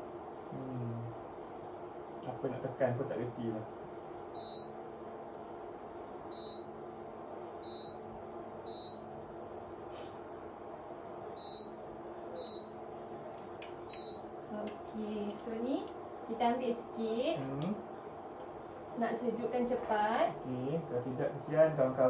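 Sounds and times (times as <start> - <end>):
steady low hum: 0.0 - 22.0
high control panel beeps: 4.2 - 4.8, 6.2 - 6.8, 7.6 - 9.2, 11.3 - 12.8, 13.8 - 14.4.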